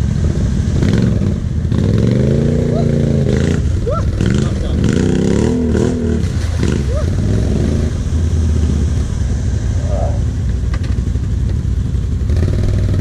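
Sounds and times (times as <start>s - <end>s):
atv engine idling: 6.3s - 13.0s.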